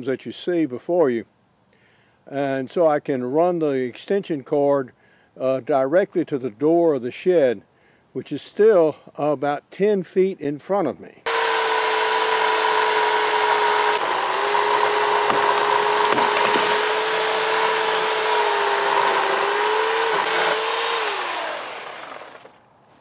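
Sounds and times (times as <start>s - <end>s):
electric chainsaw motor whine: 11.3s - 22.6s
chain rasping through wood: 11.4s - 22.6s.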